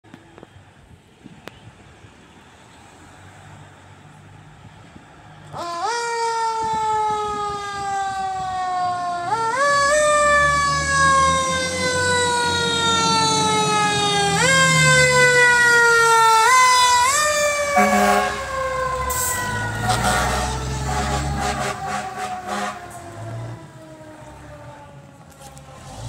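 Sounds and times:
truck engine rumbling: 0.0 - 26.0
fire truck siren wailing: 5.4 - 26.0
short horn blast: 17.8 - 18.5, 19.1 - 23.0.

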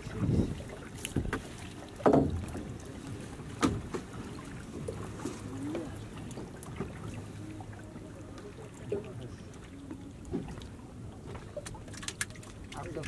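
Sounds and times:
thud on wooden boat: 2.0 - 2.6, 3.6 - 4.1
fishing net hauled over boat: 9.7 - 13.0.

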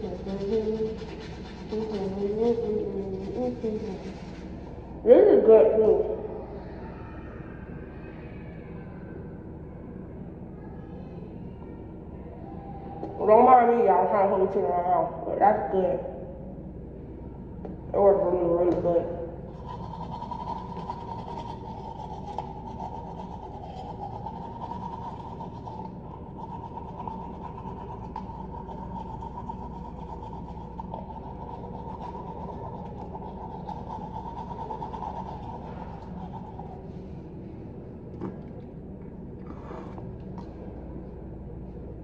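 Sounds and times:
toothbrush scrubbing teeth: 0.0 - 4.7, 19.5 - 36.9
background hum: 0.0 - 42.0.

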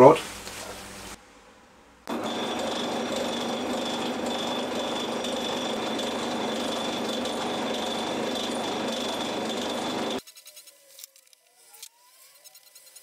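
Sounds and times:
high whine of drilling steel: 2.1 - 10.2
metal lathe running: 2.1 - 10.2.

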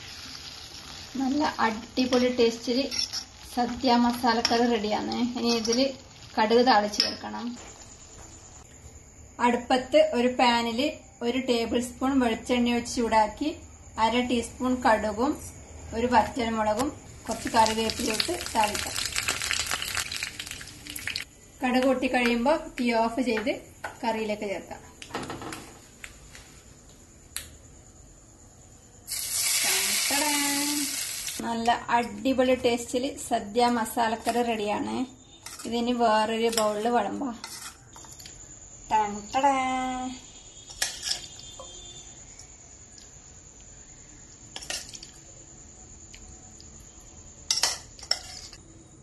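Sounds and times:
hot oil sizzling: 0.0 - 8.6, 17.1 - 21.3, 29.0 - 31.5
metal spoon clinking on pan and bowl: 2.1 - 3.4, 5.4 - 6.0, 47.5 - 48.6.

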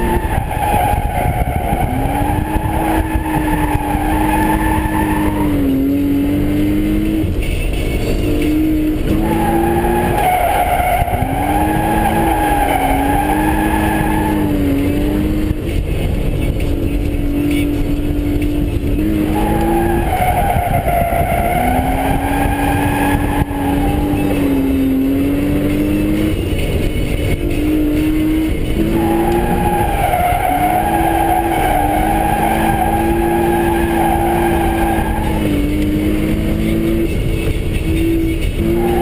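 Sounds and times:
car engine at high revs: 0.0 - 39.0
tyres squealing: 9.0 - 15.5, 19.0 - 26.3, 27.6 - 39.0.

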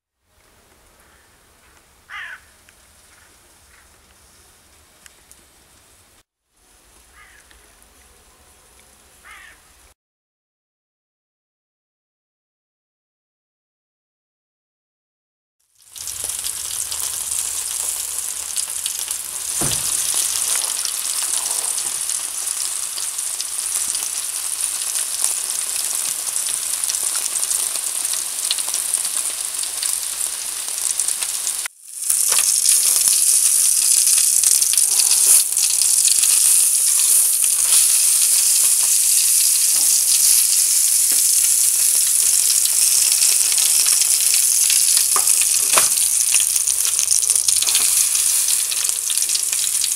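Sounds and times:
steaks sizzling on grill: 15.8 - 49.9.

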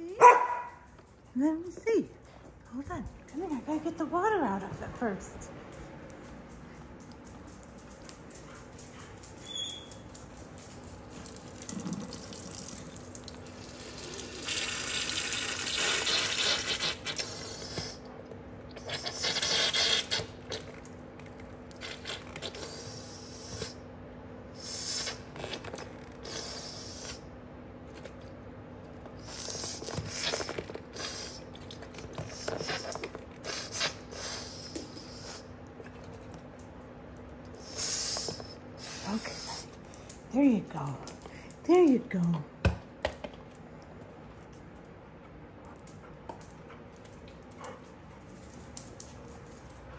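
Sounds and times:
water squirting into sink: 11.2 - 17.3.

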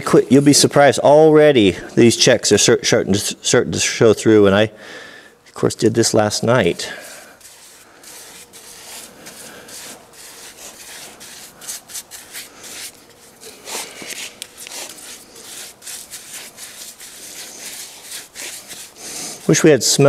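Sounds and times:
paintbrush rasping on wood: 6.9 - 19.7.

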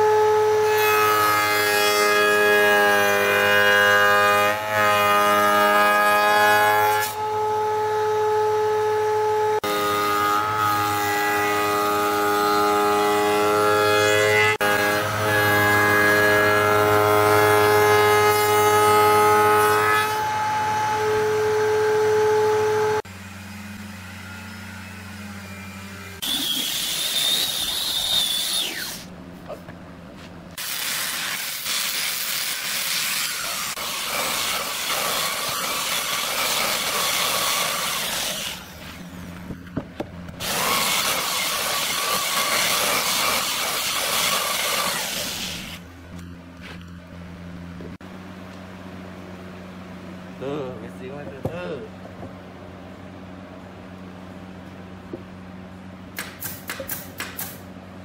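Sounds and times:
table saw ripping a board: 0.6 - 7.4, 25.3 - 29.1, 30.6 - 39.2, 40.4 - 45.8
handheld power tools grinding: 17.8 - 29.1, 30.6 - 46.3.

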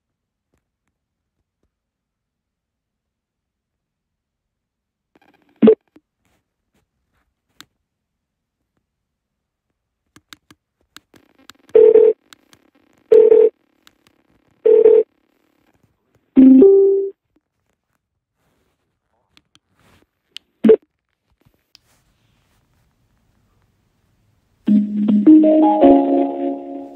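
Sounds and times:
speaker prompt tones: 16.4 - 17.1, 24.7 - 26.9.

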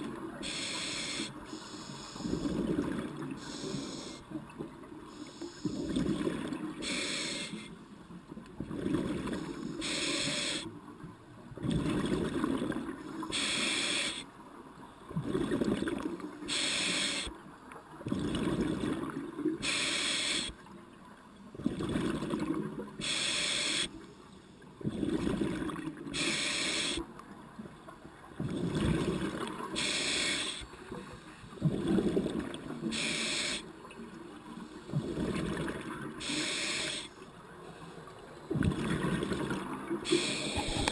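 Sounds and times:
diver breathing through regulator: 0.4 - 2.7, 3.4 - 4.2, 6.8 - 7.8, 9.5 - 10.7, 13.3 - 14.3, 16.5 - 17.3, 19.6 - 20.6, 23.0 - 24.5, 26.1 - 27.0, 29.8 - 30.7, 32.9 - 33.7, 36.2 - 37.2, 40.0 - 40.9.

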